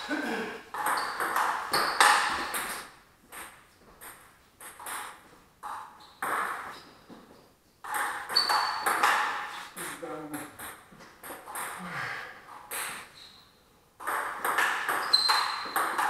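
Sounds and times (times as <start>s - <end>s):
ball bouncing on table: 0.7s - 6.8s, 7.8s - 9.5s, 14.0s - 16.0s
table tennis ball hits: 0.7s - 6.8s, 7.8s - 9.6s, 10.4s - 11.8s, 14.0s - 16.0s.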